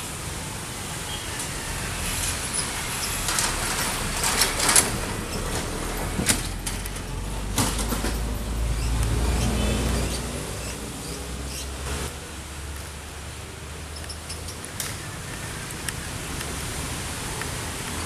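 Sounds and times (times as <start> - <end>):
locomotive engine rumble: 0.6 - 12.1.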